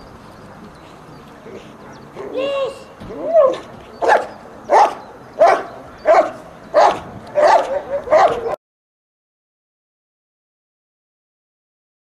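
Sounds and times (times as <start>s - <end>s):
dog barking: 3.5s - 8.6s.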